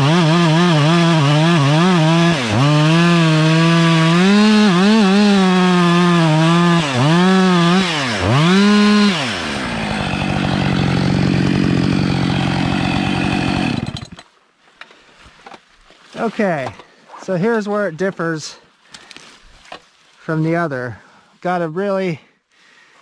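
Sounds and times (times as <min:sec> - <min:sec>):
chainsaw cutting tree trunk: 0:00.0 - 0:14.2.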